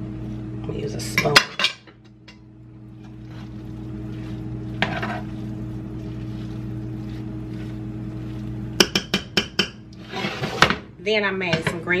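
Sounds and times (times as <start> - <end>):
steady low hum: 0.0 - 12.0
spoon scraping rice in saucepan: 3.0 - 10.6.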